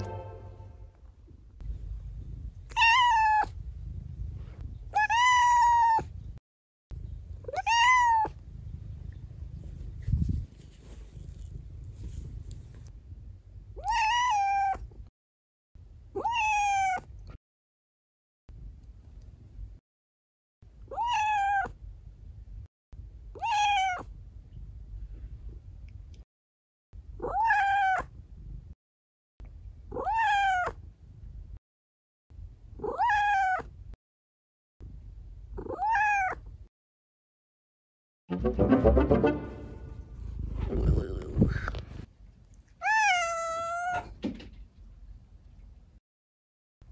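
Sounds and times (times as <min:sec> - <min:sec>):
music: 0:00.0 - 0:01.0, 0:38.3 - 0:40.2
cat meowing high-pitched: 0:02.7 - 0:03.5, 0:04.9 - 0:06.1, 0:07.5 - 0:08.4, 0:13.8 - 0:14.8, 0:16.2 - 0:17.1, 0:20.9 - 0:21.7, 0:23.4 - 0:24.1, 0:27.2 - 0:28.1, 0:29.9 - 0:30.8, 0:32.8 - 0:33.7, 0:35.6 - 0:36.4, 0:42.8 - 0:44.1.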